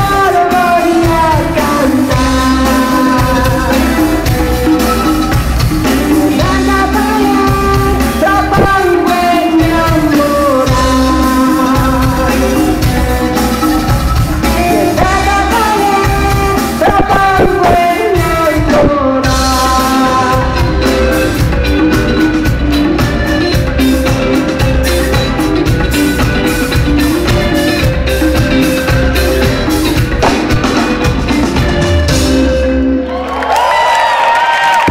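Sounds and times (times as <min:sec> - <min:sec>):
woman singing: 0:00.0 - 0:21.9
drum kit: 0:00.0 - 0:34.9
electric guitars: 0:00.0 - 0:34.9.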